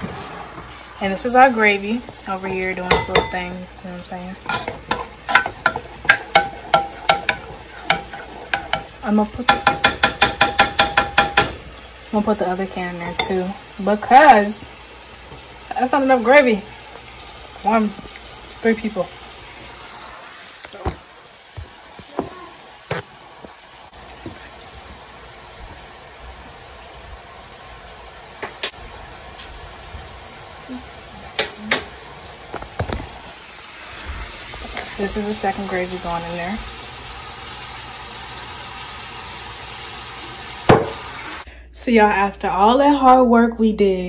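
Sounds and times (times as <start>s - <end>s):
food sizzling in frying pan: 0.0s - 41.5s
spoon knocking against saucepan: 2.9s - 3.5s, 4.4s - 11.7s.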